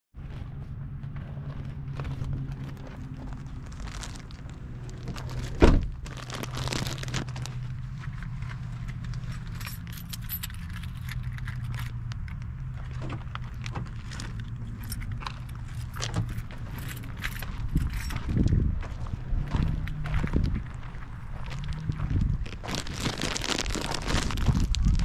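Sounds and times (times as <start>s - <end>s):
jangling and clicking rattle: 8.8s - 18.6s.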